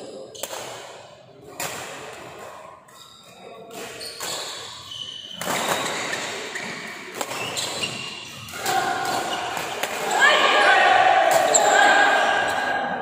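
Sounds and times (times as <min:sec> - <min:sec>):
background hall noise: 0:00.0 - 0:13.0
badminton rackets hitting shuttlecock: 0:00.3 - 0:02.6, 0:05.4 - 0:10.4.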